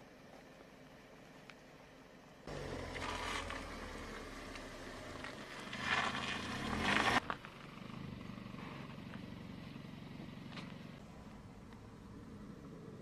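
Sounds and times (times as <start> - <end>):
low steady rumble: 0.0 - 13.0
engine revving: 2.5 - 11.1.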